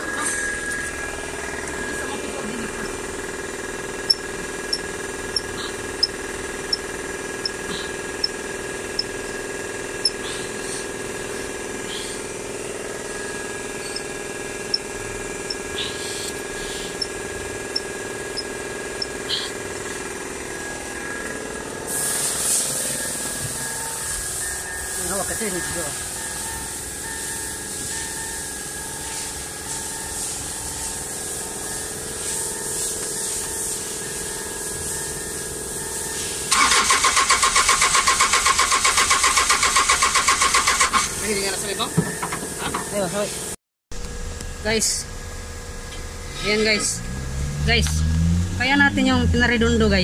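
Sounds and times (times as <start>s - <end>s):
steady mechanical hum: 0.0s - 50.0s
hiss: 21.9s - 23.3s.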